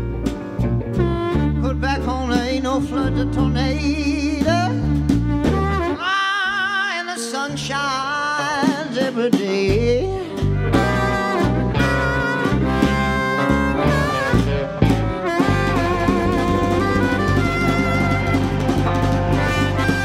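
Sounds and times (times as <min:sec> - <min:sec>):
lead guitar bent notes: 0:00.0 - 0:06.0, 0:09.8 - 0:20.0
live slow blues band: 0:00.0 - 0:20.0.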